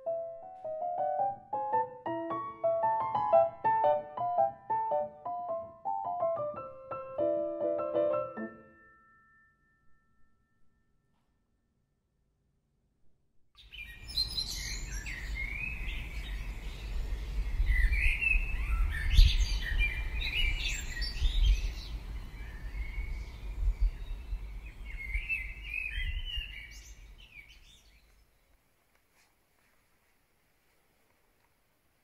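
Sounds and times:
songbirds twittering: 13.6 - 28.6.

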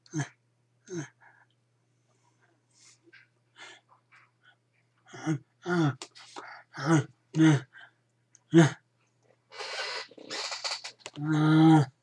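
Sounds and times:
man breathing puffs: 2.7 - 8.0, 9.5 - 10.8.

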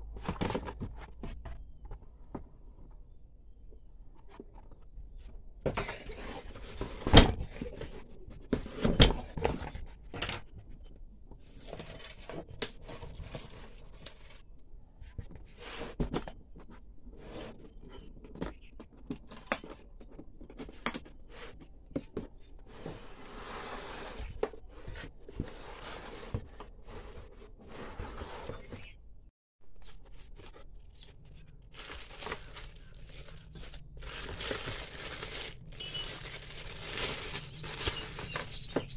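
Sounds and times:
plastic wrapping crinkling: 29.9 - 38.9.

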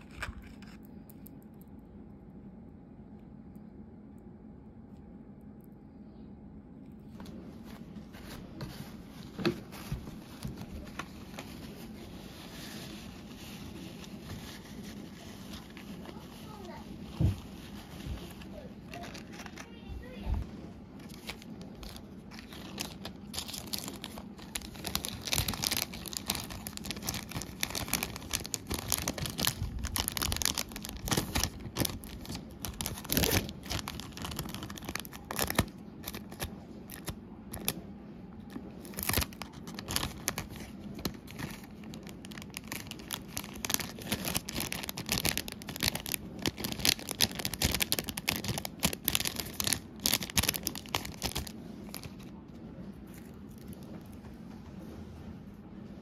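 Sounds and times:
cellophane bag crinkling: 0.0 - 1.4, 8.1 - 20.2, 21.0 - 37.8, 38.5 - 52.3.

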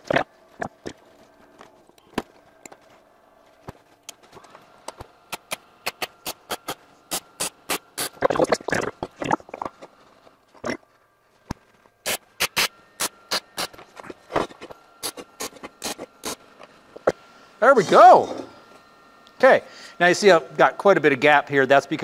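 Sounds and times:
electric welder crackling: 0.0 - 9.8, 12.0 - 17.2.

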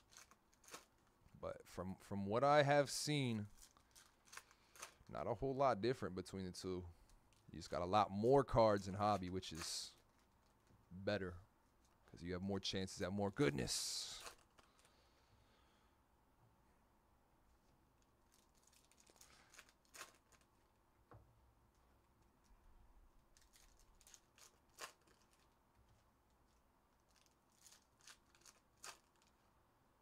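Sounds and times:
foil wrappers being ripped open: 0.0 - 1.0, 3.5 - 5.1, 18.2 - 20.5, 23.3 - 25.6, 27.0 - 29.5.

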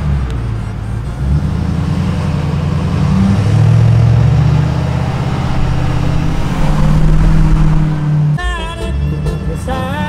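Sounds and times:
car engine running: 0.0 - 10.0
road noise: 0.0 - 10.0.

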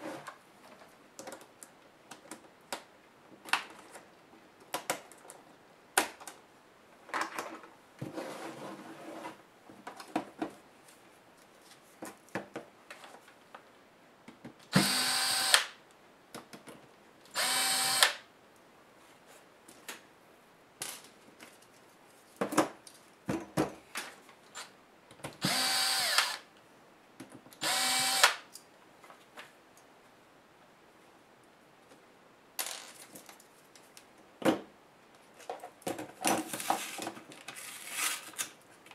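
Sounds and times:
electric screwdriver running: 14.8 - 15.6, 17.4 - 18.2, 25.4 - 26.4, 27.6 - 28.4
plastic and metal parts clattering: 35.4 - 38.6.

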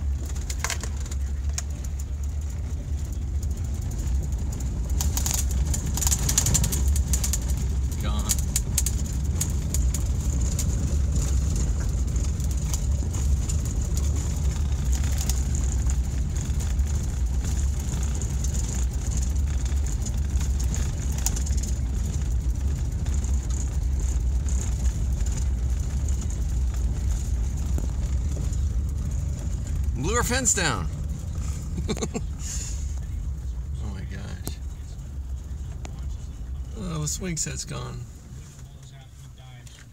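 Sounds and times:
car engine and tyres rumbling: 0.0 - 39.9
gravel crackling under tyres: 0.0 - 39.9.

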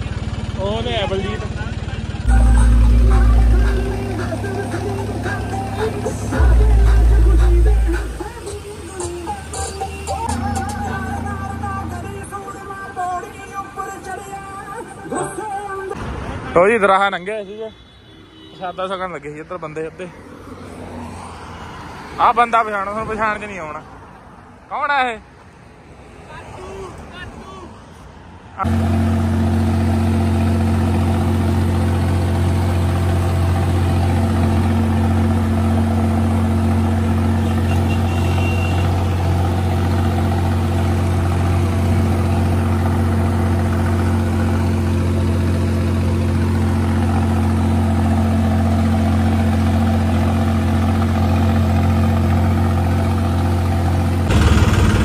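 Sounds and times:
tractor diesel engine running: 0.0 - 16.0, 28.6 - 55.0.

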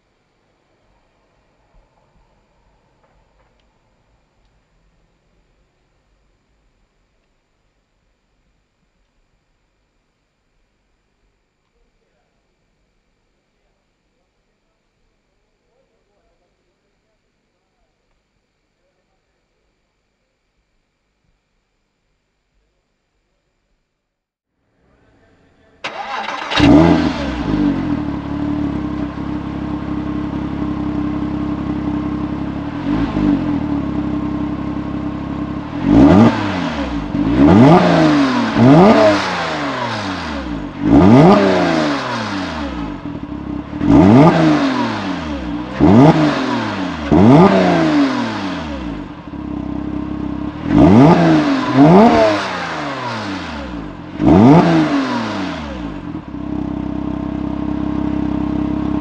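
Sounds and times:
car engine idling and revving: 25.9 - 59.0.

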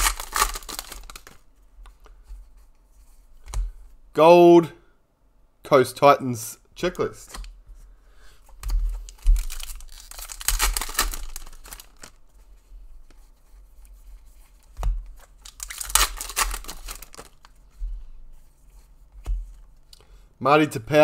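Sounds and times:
foil pack tearing open: 0.0 - 1.4, 9.1 - 12.2, 15.4 - 17.4.

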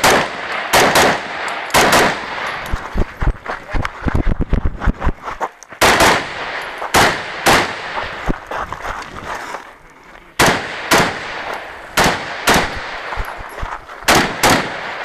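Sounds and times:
rifle shots: 0.0 - 2.8, 5.8 - 8.3, 10.4 - 15.0.

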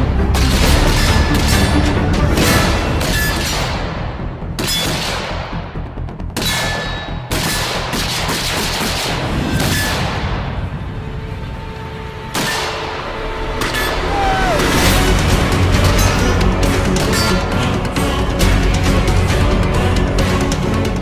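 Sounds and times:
rifle shots: 4.6 - 10.4.

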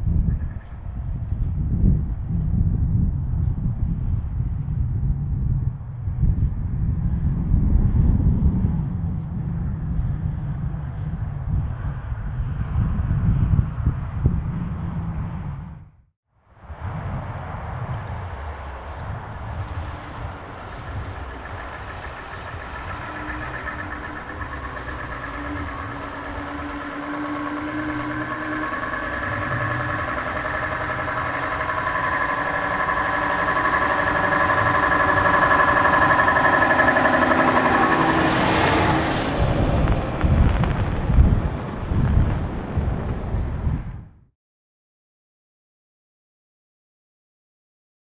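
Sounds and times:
truck passing rush: 17.0 - 44.0
diesel truck engine: 18.7 - 43.6.

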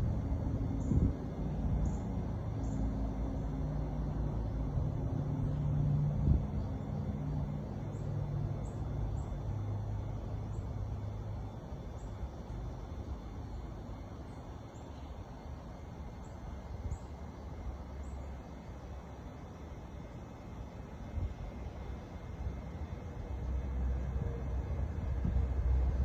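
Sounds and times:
distant engine rumble: 0.0 - 26.0.

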